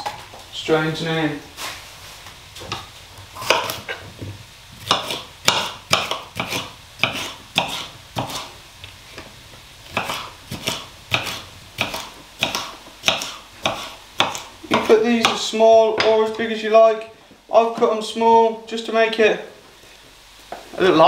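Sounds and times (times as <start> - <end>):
knife chopping on a board: 3.4 - 4.0, 4.8 - 8.5, 9.9 - 15.4.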